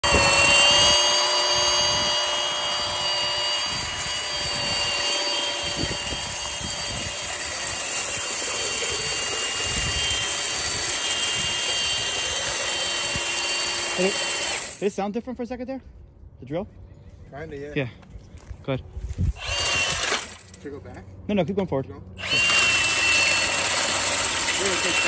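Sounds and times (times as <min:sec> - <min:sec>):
drain-cleaning machine motor whine: 0:00.0 - 0:14.8, 0:22.2 - 0:25.0.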